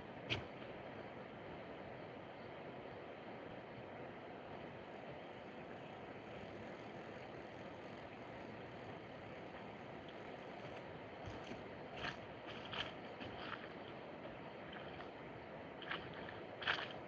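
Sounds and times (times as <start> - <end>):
even outdoor hiss: 0.0 - 17.0.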